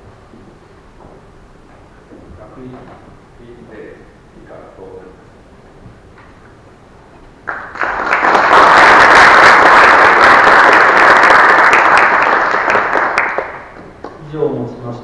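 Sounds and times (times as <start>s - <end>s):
large audience applauding: 7.4s - 14.2s.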